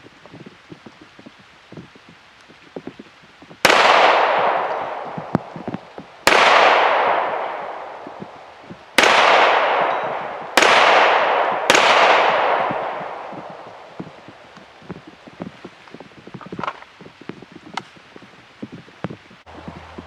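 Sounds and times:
pistol shots echoing: 3.6s - 14.0s.

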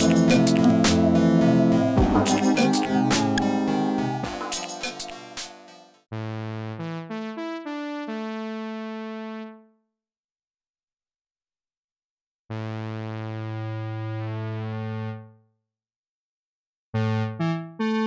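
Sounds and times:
synthesizer chords: 0.0s - 6.0s.

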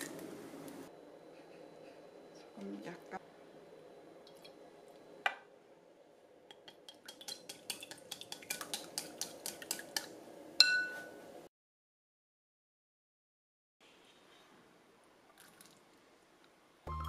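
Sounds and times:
eggs beaten in glass bowl: 6.5s - 10.2s
loud ringing tap on bowl: 10.6s - 11.1s.

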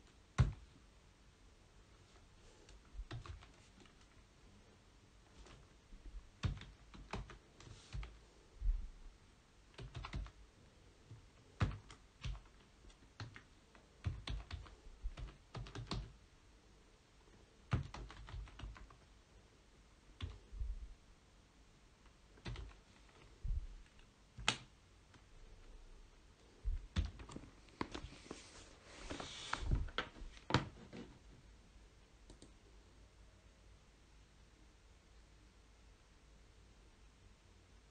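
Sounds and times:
computer keyboard typing: 0.3s - 0.7s, 2.7s - 4.2s, 6.3s - 8.2s, 9.7s - 10.4s, 11.1s - 16.2s, 17.7s - 19.1s, 20.2s - 20.4s, 22.4s - 25.2s, 26.9s - 28.0s.

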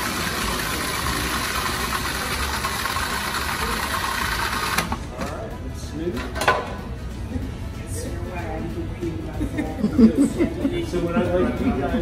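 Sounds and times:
food processor motor running: 0.0s - 5.1s.

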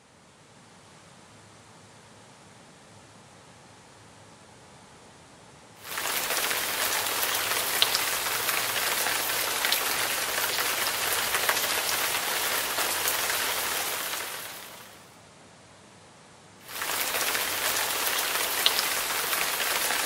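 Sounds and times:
patter of falling water: 5.8s - 15.0s, 16.6s - 20.0s.

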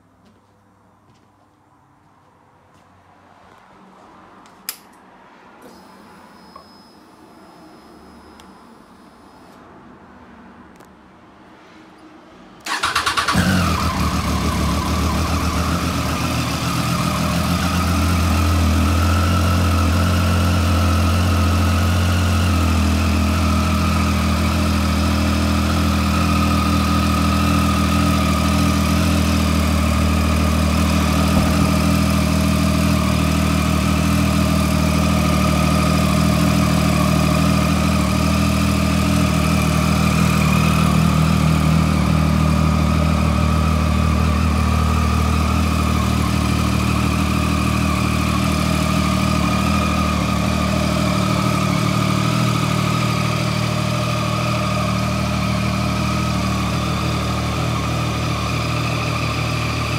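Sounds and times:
motorcycle engine starting and idling: 12.6s - 59.9s.

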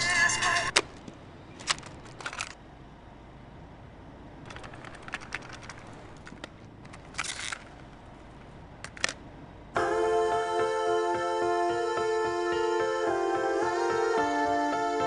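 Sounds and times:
sharp clicks and crackling: 4.4s - 7.8s.

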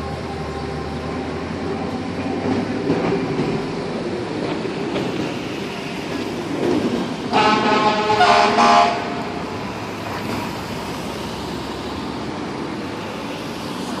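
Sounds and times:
rumble of engines and traffic: 0.0s - 14.0s
fire engine horn blasts: 7.3s - 9.3s.

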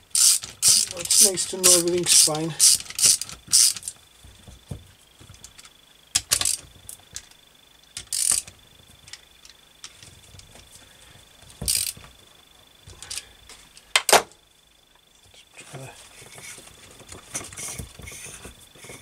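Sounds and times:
faint high whine: 0.0s - 19.0s
socket and ratchet on nuts: 0.1s - 3.9s, 6.2s - 6.6s, 8.0s - 8.5s, 11.7s - 12.0s.

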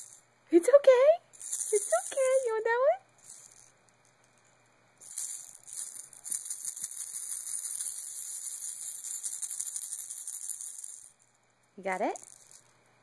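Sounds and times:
plastic baby rattle shaken: 1.3s - 2.6s, 3.2s - 11.3s, 11.9s - 12.8s.

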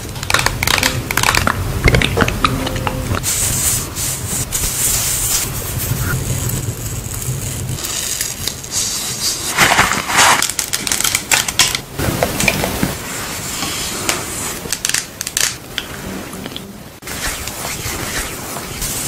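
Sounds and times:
packaging clicking and scraping: 9.4s - 11.8s.

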